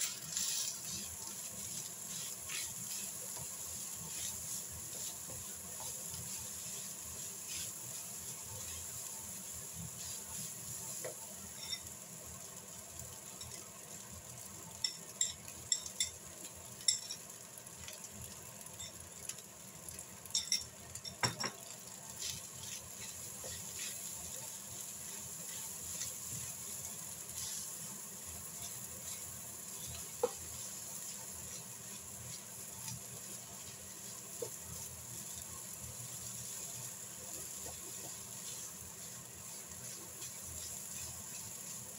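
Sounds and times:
rice sizzling in a frying pan: 0.0s - 41.9s
spatula tapping a pan: 0.3s - 8.8s, 10.9s - 11.9s, 14.8s - 16.2s, 20.3s - 24.4s, 28.5s - 35.4s, 36.4s - 41.8s.

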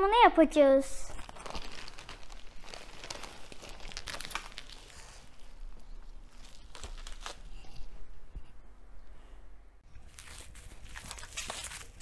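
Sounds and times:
plastic packaging crinkling: 1.1s - 7.8s, 10.0s - 12.0s.

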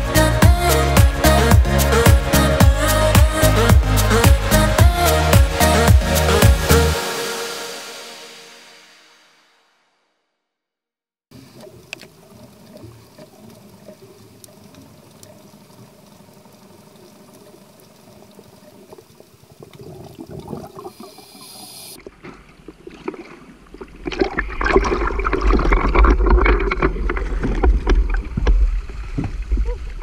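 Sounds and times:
faint underwater ambience: 11.3s - 30.0s
small clicks underwater: 11.4s - 20.7s, 22.0s - 30.0s
water sloshing and splashing: 22.0s - 30.0s.

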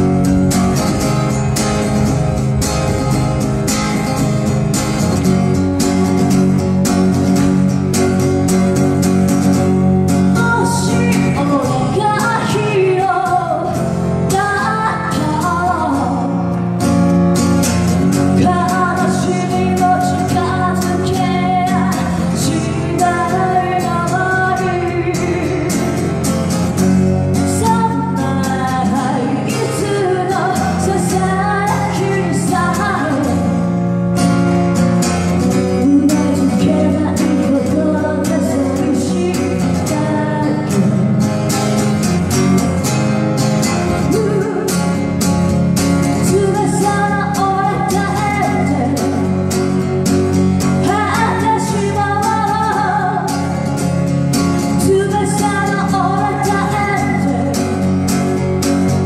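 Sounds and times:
acoustic guitar strumming: 0.0s - 59.0s
woman singing: 10.2s - 16.5s, 18.2s - 26.3s, 27.3s - 33.6s, 35.4s - 41.3s, 43.9s - 45.1s, 46.0s - 49.4s, 50.6s - 53.8s, 54.6s - 58.2s.

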